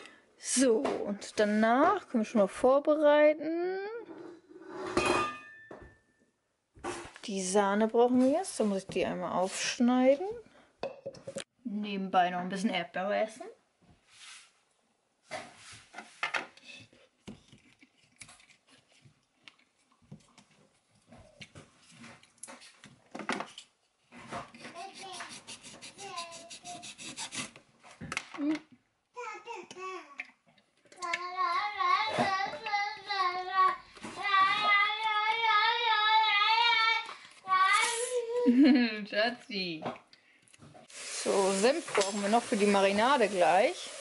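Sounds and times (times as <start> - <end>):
child singing: 31.0 - 38.4.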